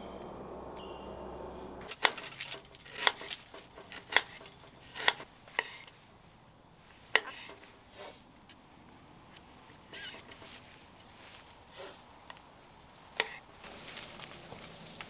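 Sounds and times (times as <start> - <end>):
cutlery and dishes clinking: 1.8 - 4.8.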